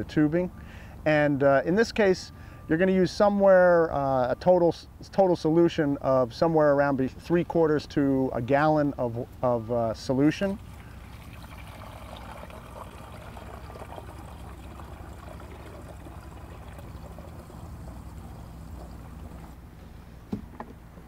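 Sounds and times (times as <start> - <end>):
water pouring through funnel: 10.6 - 19.6
light knocks: 20.3 - 21.0.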